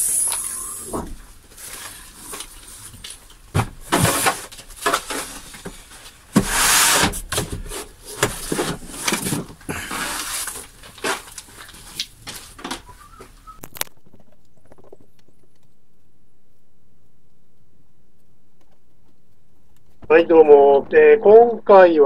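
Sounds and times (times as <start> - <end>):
scraping rustle: 0.0 - 13.7.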